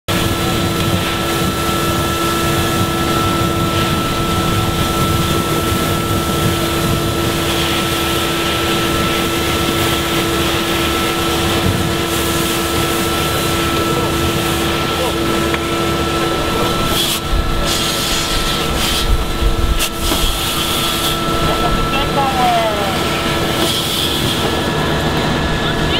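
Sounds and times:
pump engine drone with whine: 0:00.1 - 0:25.9
hose jet hissing: 0:16.2 - 0:24.6.

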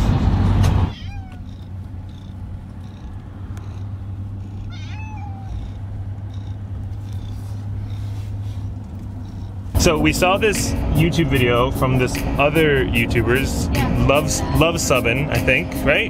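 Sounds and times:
truck cabin drone: 0:00.0 - 0:16.0
cat meowing: 0:00.9 - 0:09.7.

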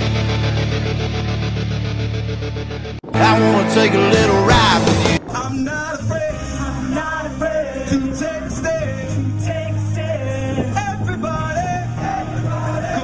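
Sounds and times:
rock song with lead vocal: 0:03.1 - 0:13.0.

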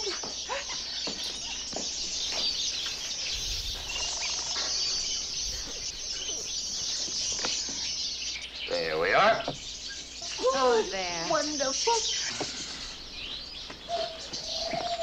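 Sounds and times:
songbirds chirping and twittering: 0:00.0 - 0:15.0.

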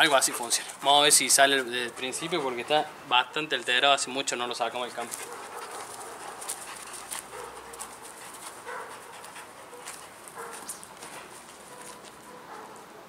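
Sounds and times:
faint clicks and rustles: 0:04.9 - 0:12.9.

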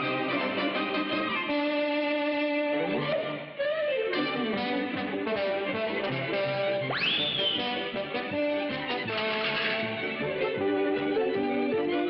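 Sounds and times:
orchestral strings cartoon music: 0:00.0 - 0:12.0.

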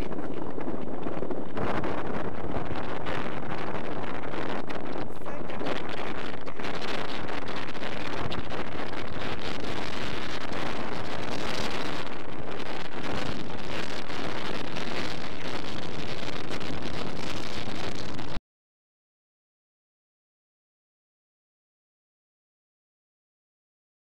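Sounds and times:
wind buffeting microphone: 0:00.0 - 0:18.4.

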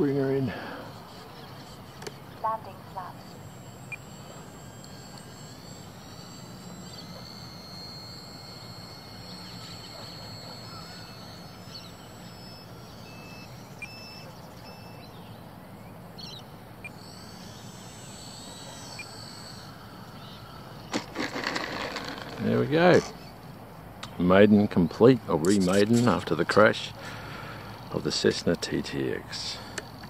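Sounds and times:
model plane motor whining: 0:00.0 - 0:24.6, 0:25.3 - 0:30.0
wind: 0:00.0 - 0:30.0
short high beeps: 0:02.4 - 0:15.2.

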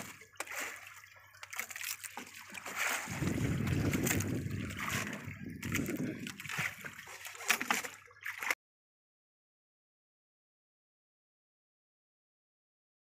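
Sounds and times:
water splashing against boat hull: 0:00.0 - 0:08.6
deep rush of water: 0:02.6 - 0:08.5.

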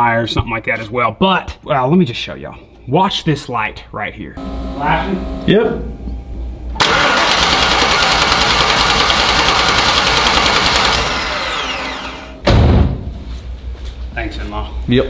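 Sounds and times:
starter motor cranking: 0:06.8 - 0:12.4
loud thump: 0:12.4 - 0:13.3.

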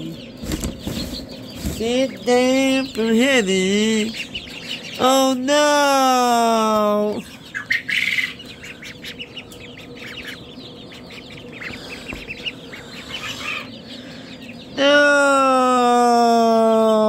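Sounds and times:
chicks peeping: 0:00.0 - 0:17.0.

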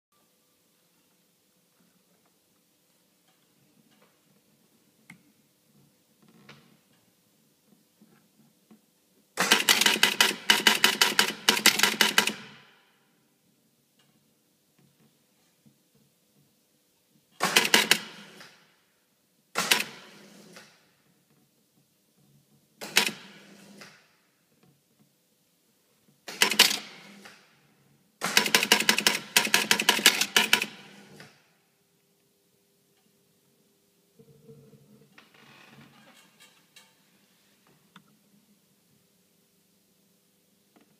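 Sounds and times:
pinball machine relays clicking: 0:28.3 - 0:30.9.

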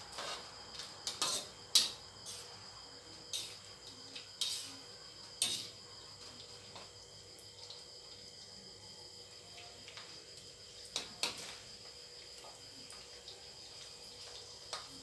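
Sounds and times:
metal tongs scraping a wok: 0:01.1 - 0:02.4, 0:04.4 - 0:04.8, 0:05.4 - 0:05.8.

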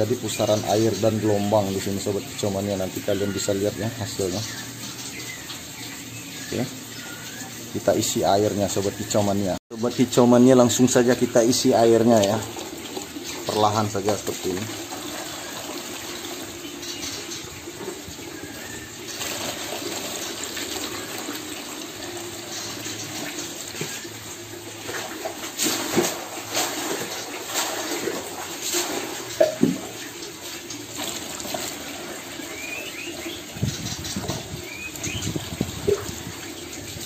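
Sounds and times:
water splashing into plastic tub: 0:10.1 - 0:37.0.

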